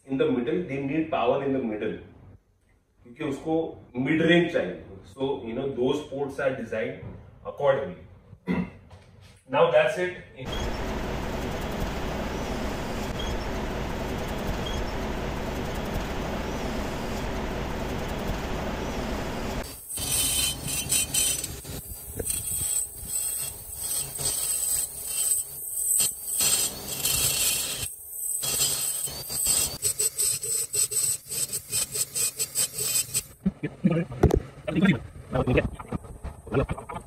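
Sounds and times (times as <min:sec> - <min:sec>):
high whine in short bursts: 0:10.5 - 0:24.4
rotary tool grinding metal: 0:19.6 - 0:33.4.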